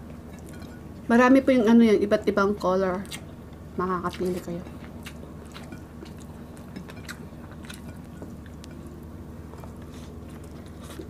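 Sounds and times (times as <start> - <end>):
steady low hum: 0.0 - 11.0
chewing and wet mouth clicks: 3.0 - 3.3, 4.1 - 8.8.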